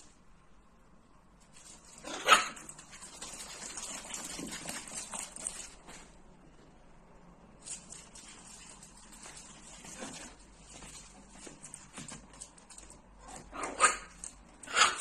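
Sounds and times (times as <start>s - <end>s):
scratchy rustling noise: 1.4s - 6.3s, 7.5s - 13.5s
dog barking: 2.1s - 2.6s, 13.6s - 15.0s.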